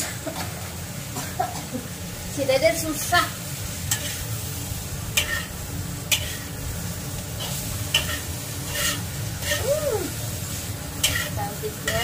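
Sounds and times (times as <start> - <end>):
food sizzling in a wok: 0.0 - 12.0
metal spatula scraping wok: 3.7 - 12.0.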